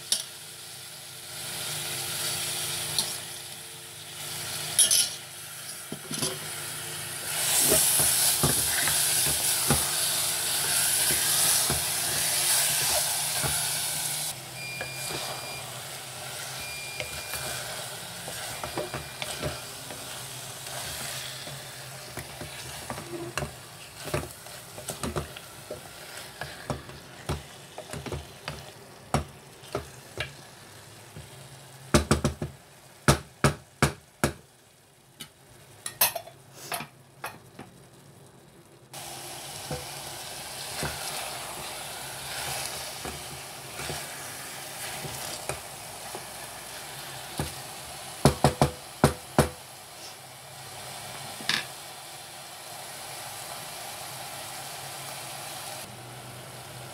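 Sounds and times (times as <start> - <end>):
chicken sizzling in pot: 0.0 - 38.2, 38.8 - 56.9
wooden spatula scraping pot: 16.6 - 28.7, 40.7 - 46.3.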